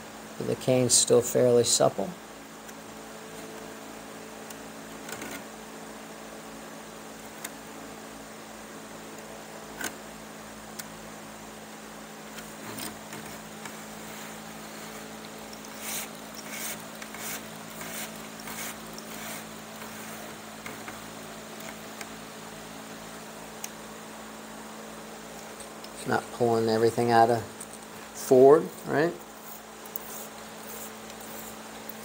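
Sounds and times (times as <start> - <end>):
steady low hum: 0.0 - 32.0
chair cane rustling and scraping: 12.3 - 21.0, 29.2 - 32.0.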